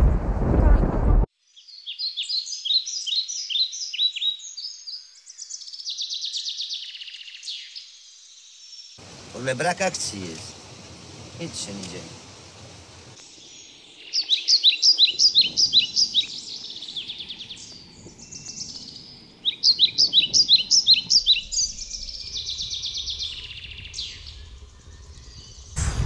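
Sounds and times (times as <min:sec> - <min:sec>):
songbird singing: 0:01.4 - 0:11.1, 0:11.8 - 0:25.8
soft bird trill: 0:13.2 - 0:25.8.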